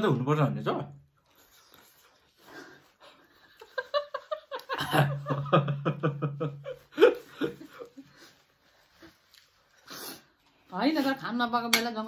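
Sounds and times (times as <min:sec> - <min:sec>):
man and woman laughing: 0:03.3 - 0:08.3.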